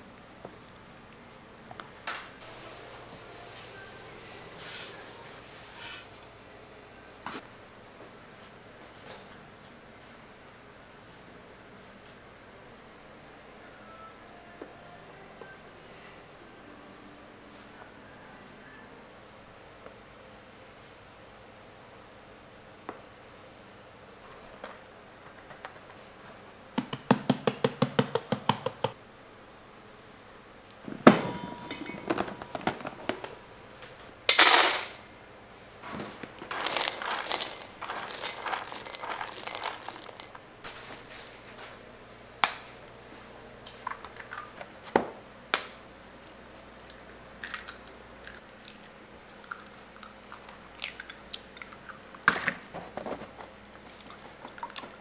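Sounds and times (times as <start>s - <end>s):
almonds rattling in steel bowl: 34.3s - 35.1s, 36.5s - 40.4s
eggs cracking: 36.5s - 40.4s
loud clattering rush: 36.5s - 40.4s.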